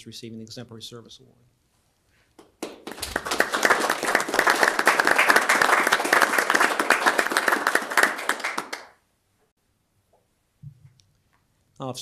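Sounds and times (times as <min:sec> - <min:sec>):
audience applauding: 0:02.4 - 0:09.0.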